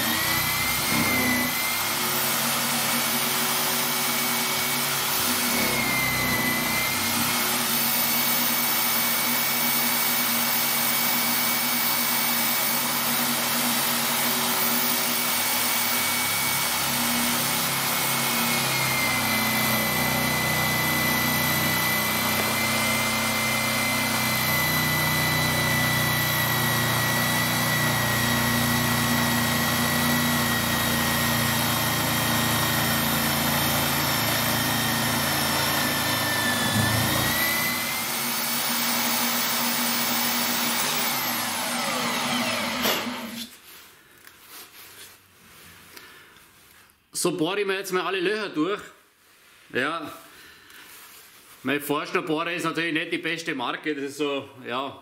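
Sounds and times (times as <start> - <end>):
drill boring through plywood: 0.0 - 43.5.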